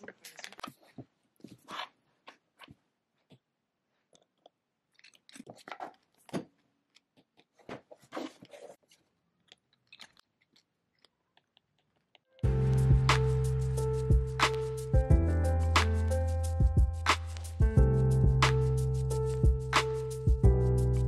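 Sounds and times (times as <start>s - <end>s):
crunching and chewing candy: 3.2s - 12.4s.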